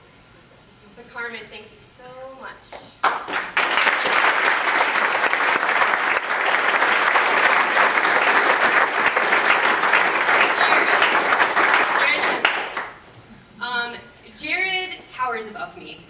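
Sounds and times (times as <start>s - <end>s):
crowd applauding: 3.0s - 13.0s.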